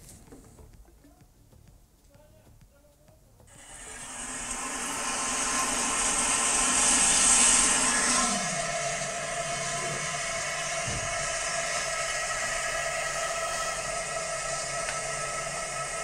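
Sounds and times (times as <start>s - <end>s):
loud steady hissing noise: 0.0s - 16.0s
low tone sliding down: 3.5s - 16.0s.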